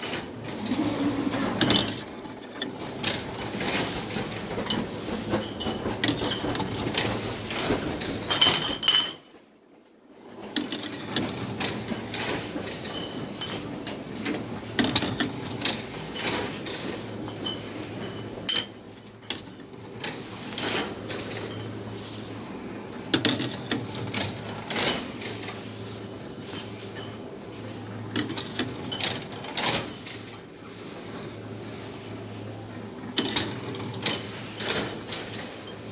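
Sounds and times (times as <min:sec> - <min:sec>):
glass bottles clinking: 0:08.3 - 0:09.3, 0:17.4 - 0:18.9.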